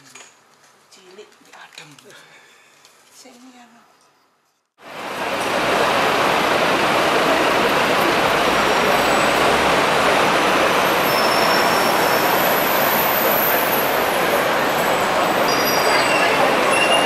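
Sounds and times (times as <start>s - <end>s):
city street traffic: 4.8s - 17.0s
faint high squeals: 15.2s - 17.0s.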